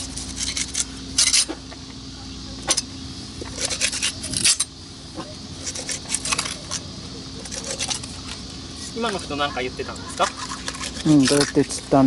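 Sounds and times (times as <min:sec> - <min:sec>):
knife scraping clicks: 0:03.4 - 0:04.7, 0:05.6 - 0:09.2.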